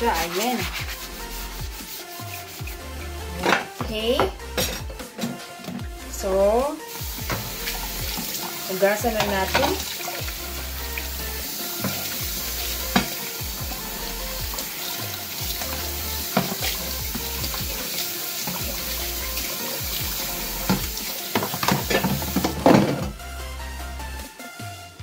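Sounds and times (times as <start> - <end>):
dish drainer being scrubbed: 0.0 - 5.8, 6.9 - 23.1
faucet running into sink: 6.9 - 22.9
plastic knocking against sink: 20.7 - 23.2.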